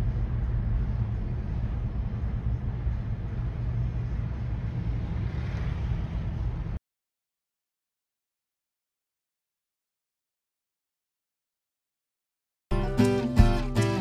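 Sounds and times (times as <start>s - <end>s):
diesel truck engine drone: 0.0s - 6.8s
road traffic rumble: 0.0s - 6.8s.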